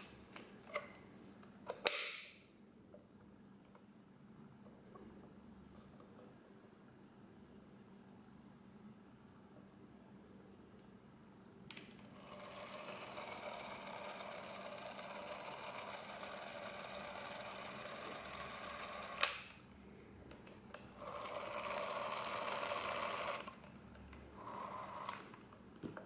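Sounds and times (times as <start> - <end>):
film camera motor whirring: 12.1 - 19.5, 21.0 - 23.6, 24.4 - 25.4.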